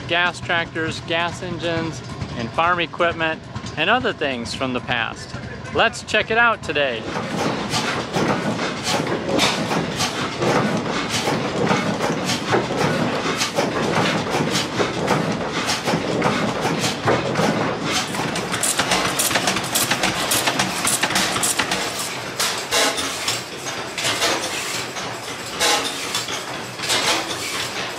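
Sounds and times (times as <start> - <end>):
old engines clattering: 0.0 - 27.9
flywheel engine clicking: 7.0 - 27.9.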